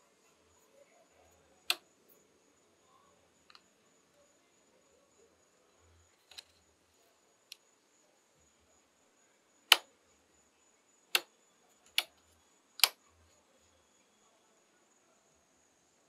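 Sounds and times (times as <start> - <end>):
rocker switch clicks: 12.8 - 13.0.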